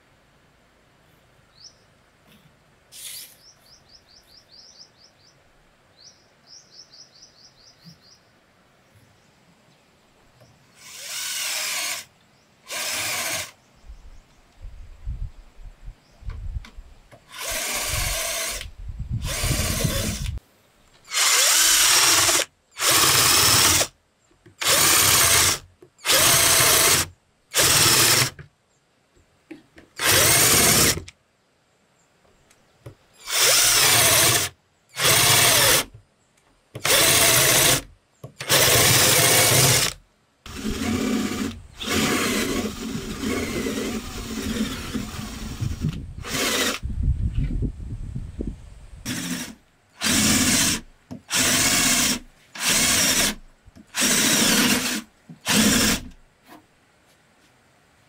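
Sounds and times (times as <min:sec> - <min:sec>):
power drill boring into wood: 0:10.8 - 0:12.1, 0:12.7 - 0:13.6, 0:17.3 - 0:20.4, 0:21.1 - 0:24.0, 0:24.6 - 0:28.4, 0:30.0 - 0:31.1, 0:33.2 - 0:35.9, 0:36.8 - 0:46.8, 0:49.1 - 0:56.2.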